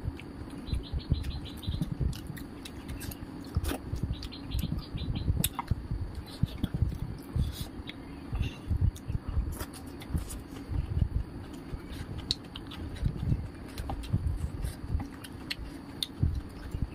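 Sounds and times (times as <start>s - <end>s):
chewing with mouth smacks: 0.1s - 4.7s, 5.4s - 8.1s, 8.9s - 16.9s
bird chirping: 0.5s - 6.9s.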